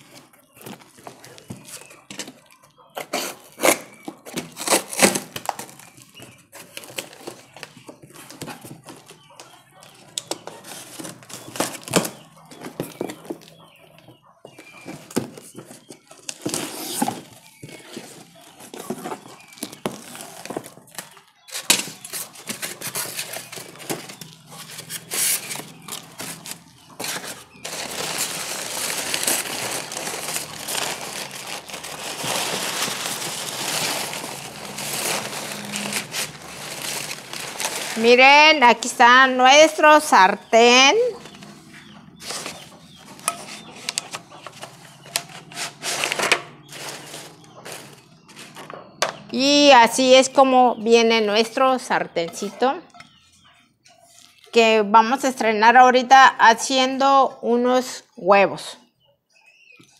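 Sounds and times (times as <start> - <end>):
packing paper rustling: 0.0 - 9.2, 10.2 - 13.5, 14.6 - 38.3, 42.2 - 48.6
cardboard and tape tearing: 3.0 - 6.0, 16.2 - 38.0, 45.2 - 48.6.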